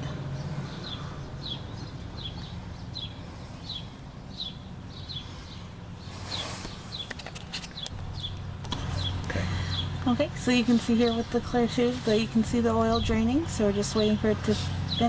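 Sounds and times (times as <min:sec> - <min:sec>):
bird chirping: 0:00.0 - 0:15.0
brief rustle: 0:06.2 - 0:08.0.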